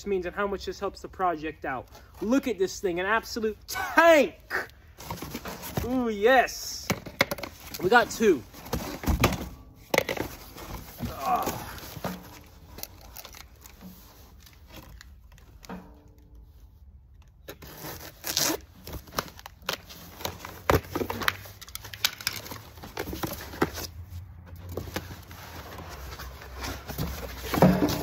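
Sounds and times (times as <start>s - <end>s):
cardboard box tearing and rustling: 10.2s - 14.6s, 17.6s - 23.9s.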